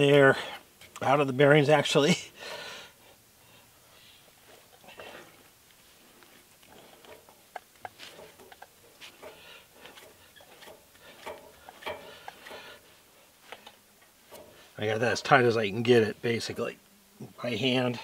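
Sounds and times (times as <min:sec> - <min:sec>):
wheel hub bearings scraping: 0:04.4 - 0:15.7.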